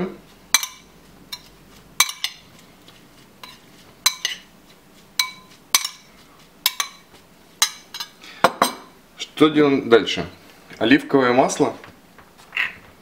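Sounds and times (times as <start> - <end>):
metal spoon clinking on glass bowl: 0.5 - 2.4, 3.4 - 4.5, 5.2 - 7.0, 7.6 - 8.9.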